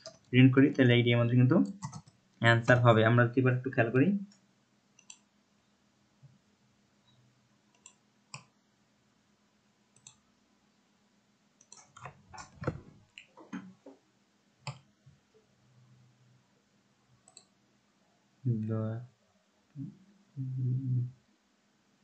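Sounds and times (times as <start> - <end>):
faint mouse and keyboard clicks: 1.6 - 2.8, 5.0 - 5.3, 7.1 - 8.5, 10.0 - 10.2, 11.6 - 14.0, 14.6 - 14.9, 17.2 - 17.6.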